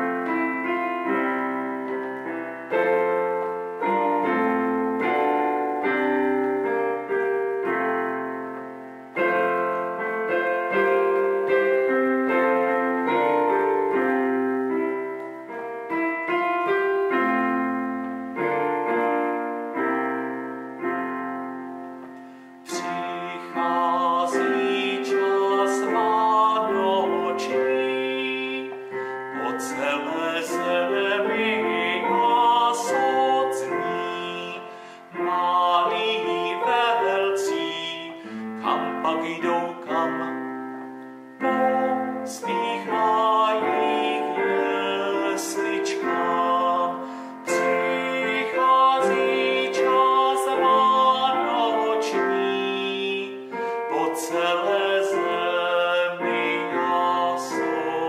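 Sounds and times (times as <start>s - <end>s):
electronic keyboard playing chords: 0.0s - 58.0s
man singing: 2.6s - 8.0s, 9.2s - 14.4s, 22.6s - 58.0s.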